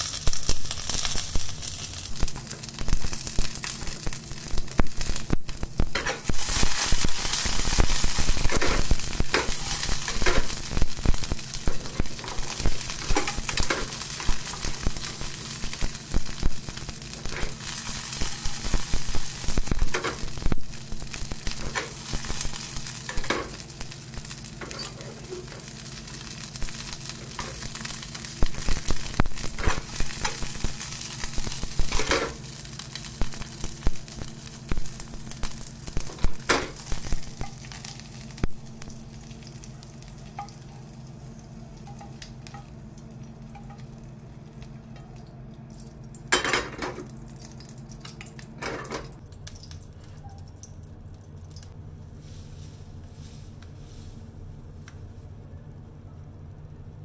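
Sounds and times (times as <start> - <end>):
vegetables sizzling in oil: 0.0 - 49.8
metal tongs scraping pan: 24.6 - 25.6.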